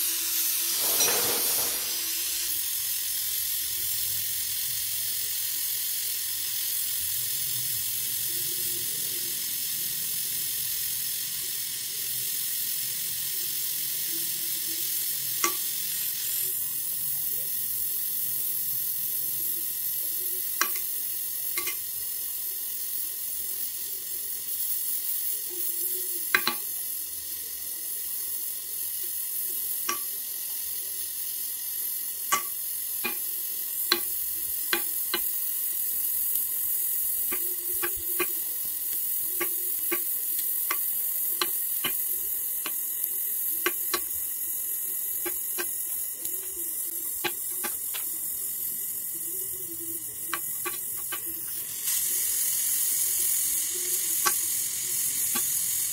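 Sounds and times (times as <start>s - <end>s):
welding torch flame hissing: 0.0s - 55.9s
sharp pops and crackles: 32.3s - 48.7s, 50.2s - 52.0s, 54.2s - 55.9s.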